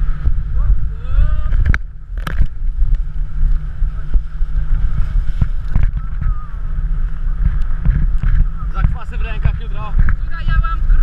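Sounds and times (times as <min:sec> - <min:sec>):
wind rumbling on microphone: 0:00.0 - 0:11.0
tube knocking and slapping on water: 0:07.4 - 0:10.7.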